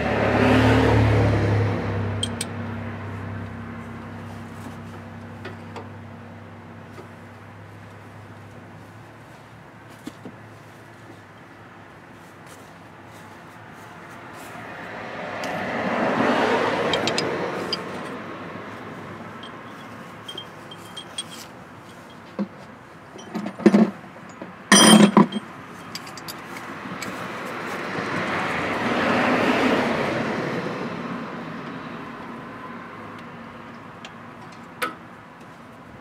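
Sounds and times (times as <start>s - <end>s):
road traffic passing: 0.0s - 36.0s
metallic clinks and knocks: 2.2s - 2.6s, 16.9s - 18.2s, 19.3s - 27.1s.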